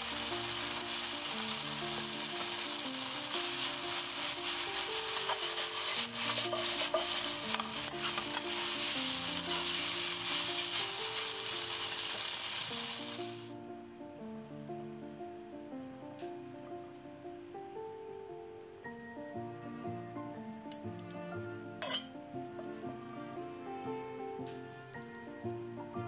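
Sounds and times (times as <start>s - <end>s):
food sizzling in frying pan: 0.0s - 13.6s, 21.8s - 22.2s
utensil scraping pan: 3.3s - 12.7s, 21.8s - 22.1s.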